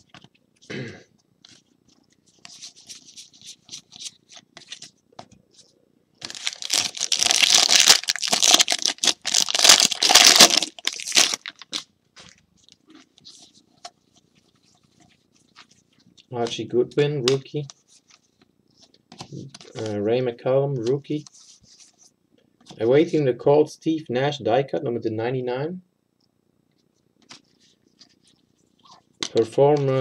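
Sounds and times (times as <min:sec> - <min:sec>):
wrapper tearing and crinkling: 0:06.2 - 0:11.9.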